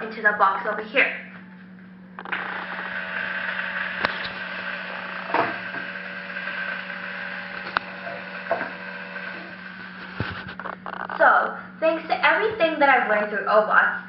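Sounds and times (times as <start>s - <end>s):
small geared motor running: 2.2s - 11.2s
sharp clicks: 7.5s - 7.9s.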